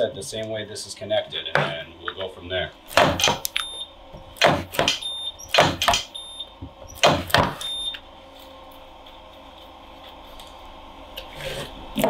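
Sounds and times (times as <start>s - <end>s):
spot welder sharp bursts: 4.4s - 6.2s.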